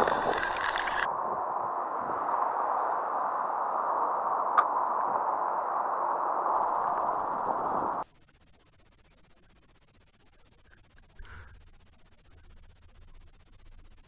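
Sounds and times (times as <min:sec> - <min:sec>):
rushing outdoor noise: 0:00.0 - 0:08.1.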